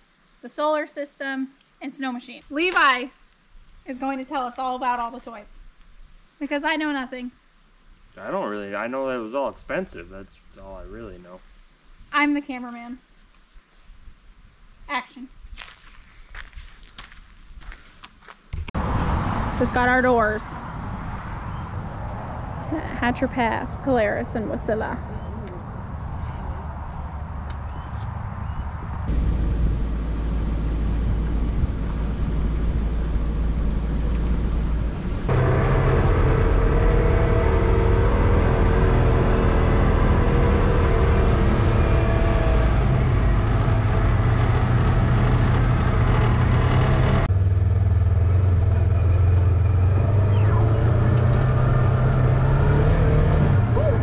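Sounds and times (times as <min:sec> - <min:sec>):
road and wind noise: 0:02.3 - 0:54.0
vehicle engine hum: 0:18.8 - 0:54.0.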